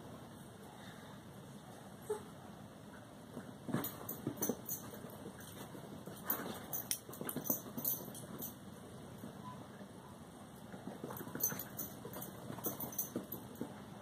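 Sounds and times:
dogs scuffling: 3.3s - 8.6s, 10.8s - 13.9s.

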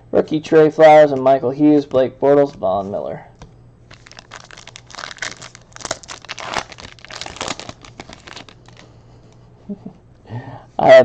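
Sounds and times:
foil wrapper tearing and crinkling: 3.9s - 8.9s.

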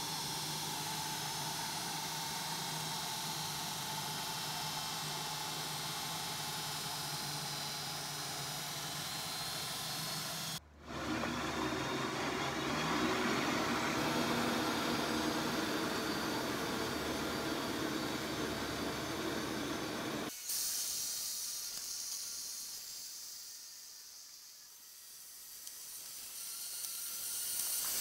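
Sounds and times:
electric motor humming: 0.1s - 20.3s
even hiss: 14.1s - 28.0s.

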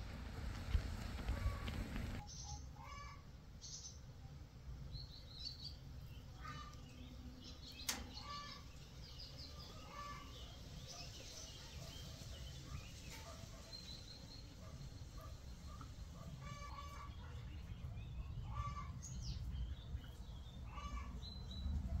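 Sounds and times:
low background rumble: 0.0s - 2.2s
small birds chirping: 0.4s - 4.2s, 4.8s - 22.0s.

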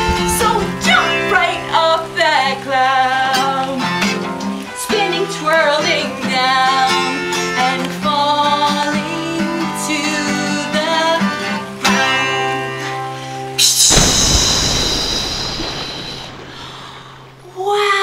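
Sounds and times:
woman singing: 0.0s - 12.3s, 17.5s - 18.0s
strummed acoustic guitar: 0.0s - 15.1s.

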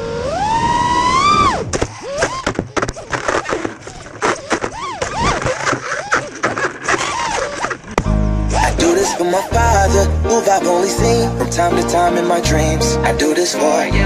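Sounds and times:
drone motors whining: 0.0s - 3.7s
propellers striking twigs: 1.7s - 9.0s.

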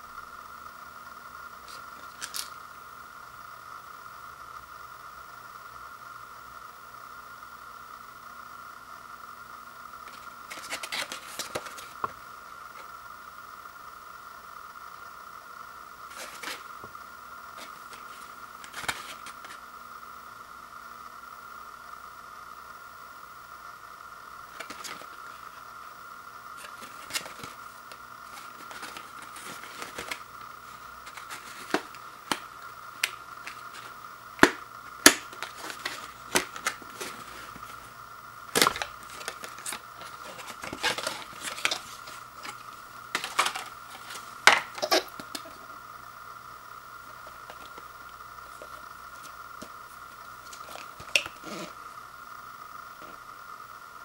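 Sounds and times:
steady high-pitched hum: 0.0s - 54.0s
packaging rustling and clicking: 10.1s - 12.2s, 17.6s - 19.6s, 24.6s - 25.2s, 26.6s - 37.9s, 38.5s - 45.6s, 47.2s - 47.9s.

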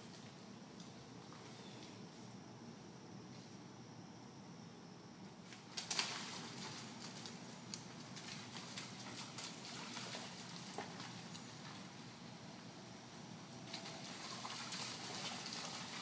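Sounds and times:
hooves splashing through water: 5.5s - 12.3s, 13.5s - 16.0s.

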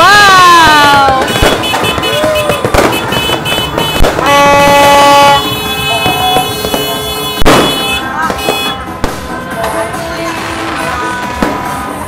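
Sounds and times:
firecracker bangs: 0.4s - 9.8s, 10.4s - 12.0s
loud horn blast: 1.2s - 8.9s.

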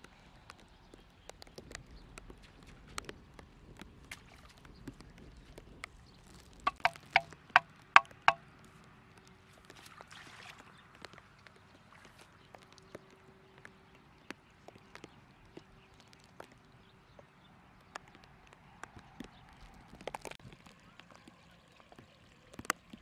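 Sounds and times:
faint clicks and rustles: 0.0s - 23.0s
wooden stake being hammered: 6.7s - 8.4s.

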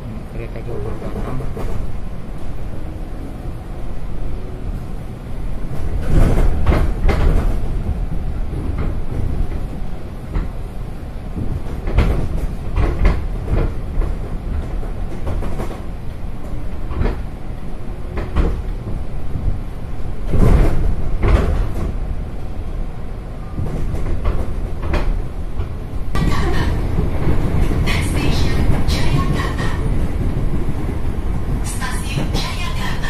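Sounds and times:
train interior rumble: 0.0s - 33.0s
wheels clattering on track: 5.5s - 17.4s, 18.1s - 22.6s, 23.5s - 33.0s.

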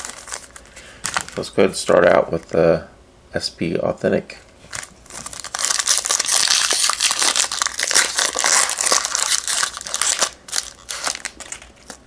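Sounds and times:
wrapper crinkling as torn open: 0.0s - 1.4s, 4.7s - 12.0s.

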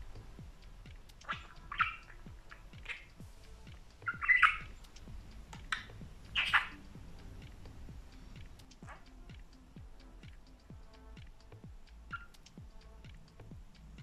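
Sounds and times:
budgerigar chirping and squawking: 0.8s - 6.9s, 8.3s - 9.4s, 12.0s - 12.6s.

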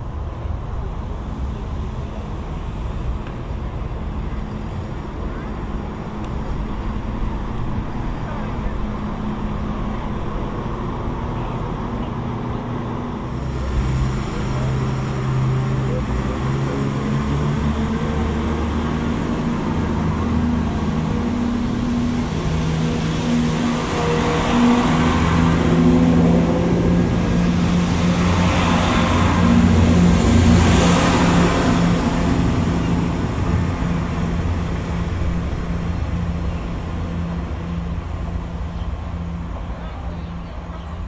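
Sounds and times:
diesel train engines droning: 0.0s - 41.0s.

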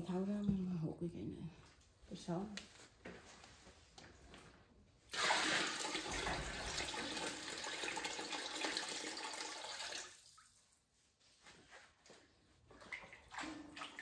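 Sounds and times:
water running from a tap: 5.2s - 10.6s.

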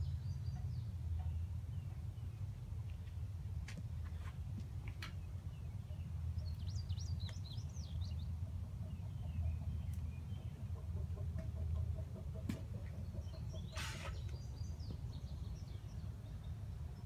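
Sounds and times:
birds chirping: 4.0s - 17.0s
short hiss: 13.8s - 14.2s.

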